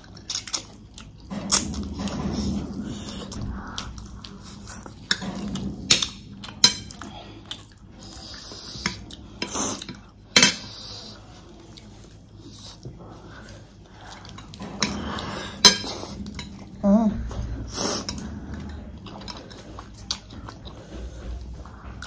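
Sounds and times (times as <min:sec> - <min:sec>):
cutlery clinking against plate: 0:08.8 - 0:10.7.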